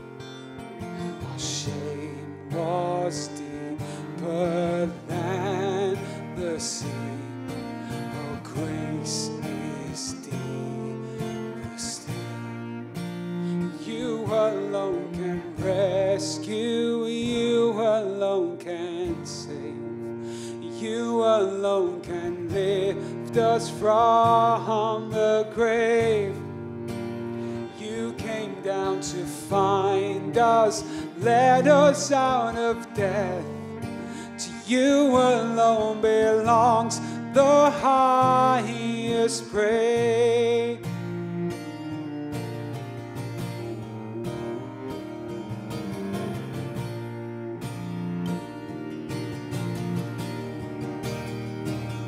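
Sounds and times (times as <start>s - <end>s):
bowed cello notes: 0.0s - 52.0s
strummed acoustic guitar: 0.0s - 52.0s
man singing: 0.7s - 12.5s, 13.5s - 26.6s, 27.6s - 41.5s.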